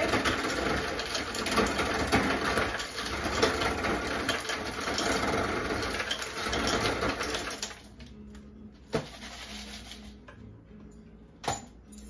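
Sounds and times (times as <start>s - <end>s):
crushed ice clattering: 0.0s - 7.8s
ice dispenser motor grinding: 0.0s - 7.9s.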